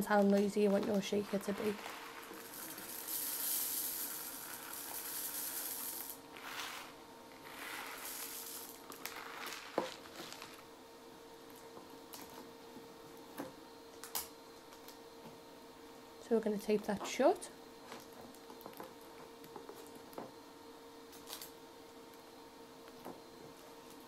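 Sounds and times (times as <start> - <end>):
rice pouring into a tube: 1.3 - 10.7.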